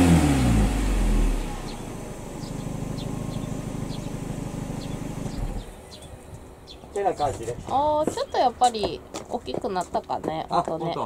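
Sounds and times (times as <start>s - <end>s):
car engine revving then idling: 0.0s - 6.2s.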